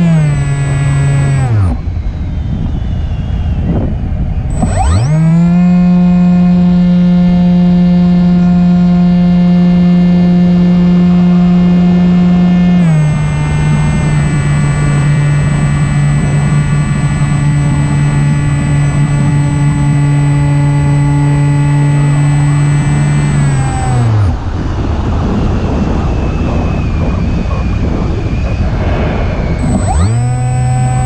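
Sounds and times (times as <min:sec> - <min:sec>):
electric motor and propeller whine: 0:00.0 - 0:31.0
wind rushing past: 0:24.3 - 0:31.0.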